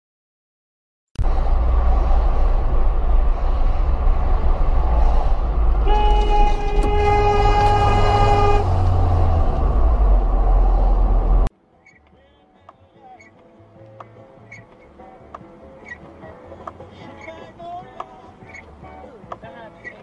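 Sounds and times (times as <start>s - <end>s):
car road and engine noise: 1.2s - 12.0s, 13.3s - 20.0s
car horn: 4.2s - 10.1s.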